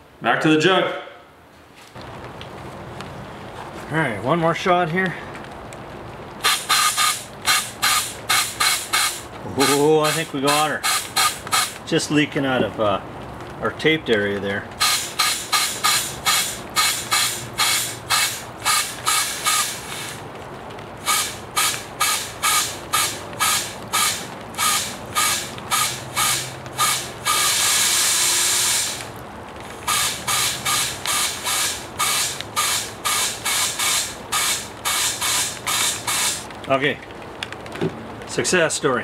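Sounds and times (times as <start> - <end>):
air pump hissing strokes: 6.4 - 11.8, 14.8 - 20.2, 21.0 - 29.1, 29.7 - 36.5
steady hiss of air: 6.4 - 12.9, 14.8 - 36.6.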